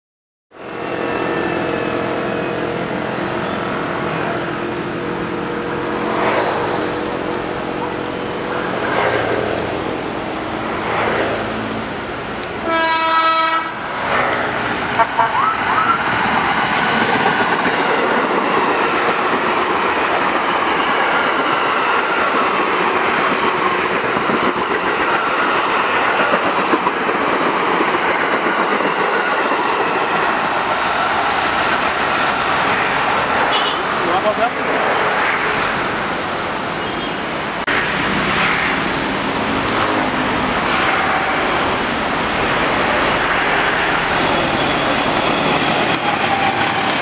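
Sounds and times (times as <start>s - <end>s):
train wheels rumbling on rails: 0.8s - 47.0s
train horn blast: 12.6s - 13.8s.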